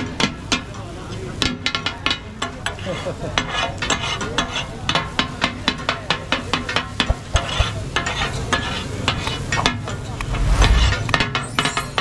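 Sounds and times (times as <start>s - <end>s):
metal spatulas striking griddle: 4.9s - 10.3s.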